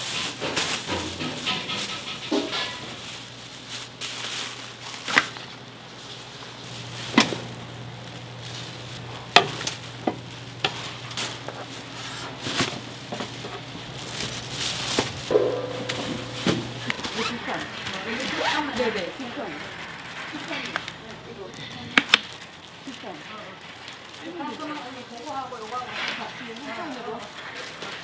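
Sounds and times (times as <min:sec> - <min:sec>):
utensils clacking and knocking: 0:00.0 - 0:03.4, 0:08.9 - 0:22.3
low hum: 0:12.9 - 0:18.2.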